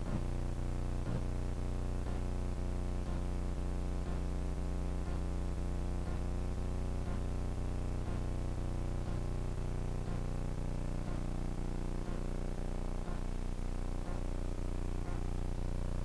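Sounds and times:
low buzzing hum: 0.0 - 16.0
faint soft ticks: 2.0 - 2.3, 3.0 - 3.3, 4.0 - 4.3, 5.0 - 5.3, 6.0 - 6.3, 7.0 - 7.3, 8.0 - 8.3, 9.0 - 9.3, 10.0 - 12.4, 13.0 - 13.4, 14.0 - 14.4, 15.0 - 15.3.

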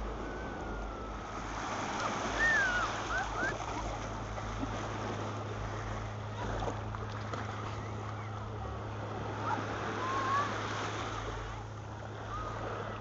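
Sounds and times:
steady low hum: 0.0 - 13.0
surf washing over sand: 0.0 - 13.0.

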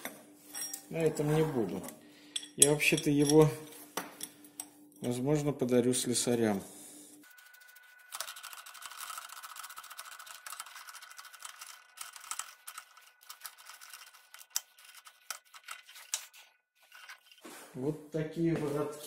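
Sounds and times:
steady high hum: 0.0 - 8.8.

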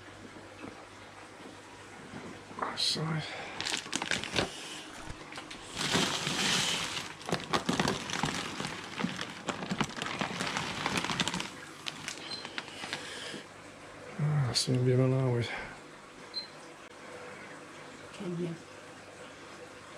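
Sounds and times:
plastic bags rustling: 3.6 - 13.4.

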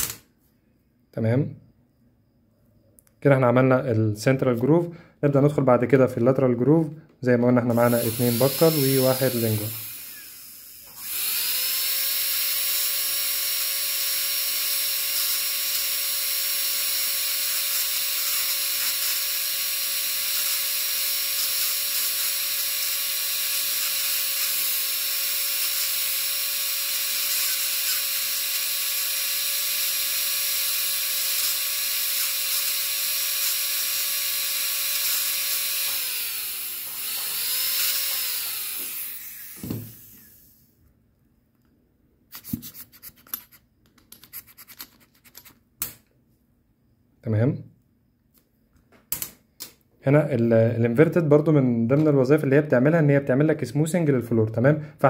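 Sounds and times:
dental drill whine: 0.0 - 0.2, 7.6 - 40.7.

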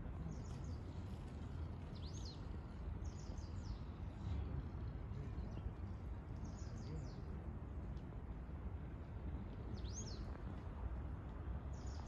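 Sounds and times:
small birds chirping: 0.2 - 4.3, 9.7 - 10.4.

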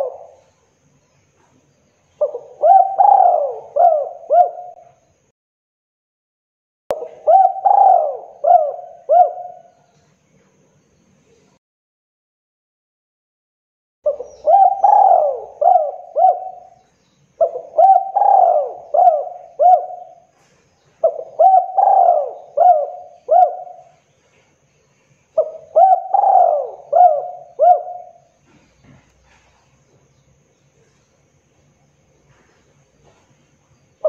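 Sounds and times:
dove cooing: 0.0 - 0.5, 2.2 - 5.0, 6.9 - 9.7, 14.1 - 24.0, 25.4 - 29.6.

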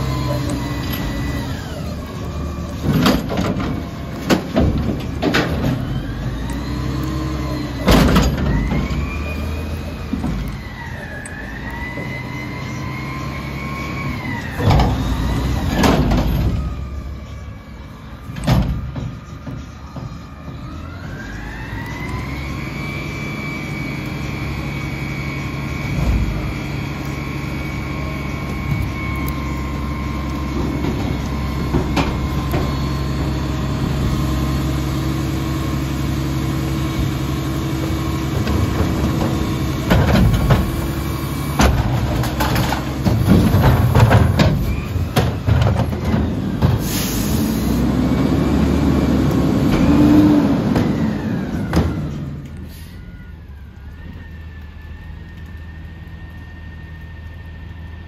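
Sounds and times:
trash carts clanking and banging: 0.0 - 21.4, 22.0 - 52.9
garbage truck engine whine: 0.0 - 58.0.

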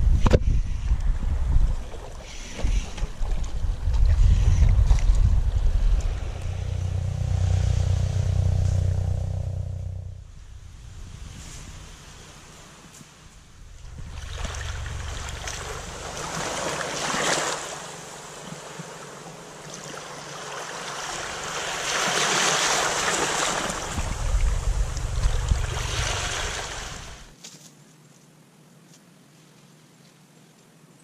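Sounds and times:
wind buffeting microphone: 0.0 - 18.3, 22.6 - 27.3
small waves washing on sand: 10.8 - 27.3.

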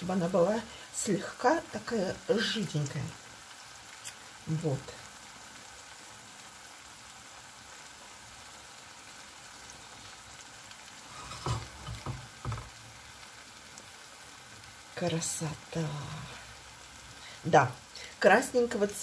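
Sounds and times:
food sizzling in a pan: 0.0 - 19.0
soft knocks: 11.3 - 12.8.

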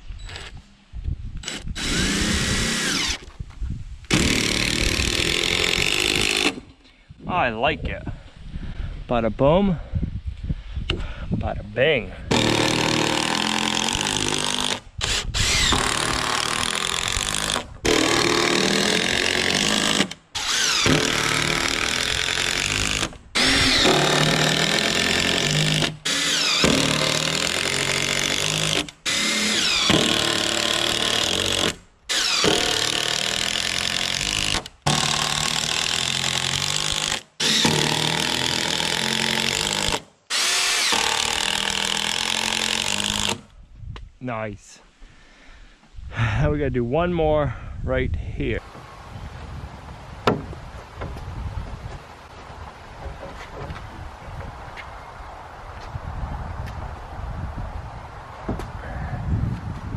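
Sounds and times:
impact driver driving screws into wood: 1.4 - 3.3, 4.1 - 6.7, 12.3 - 43.5.

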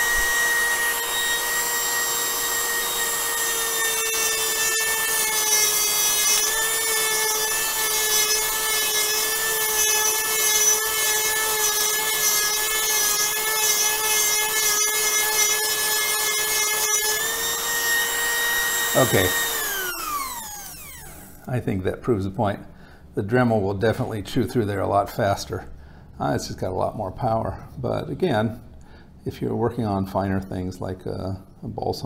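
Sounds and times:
rotary tool whining: 0.0 - 21.5.

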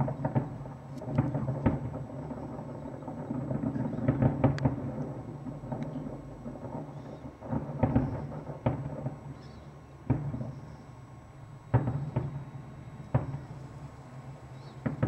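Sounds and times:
distant firework shells booming: 0.0 - 15.0.

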